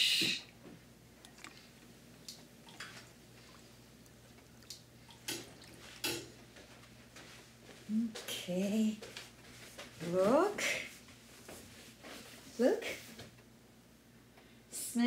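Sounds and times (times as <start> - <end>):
ladle splashing liquid in pot: 1.2 - 6.4.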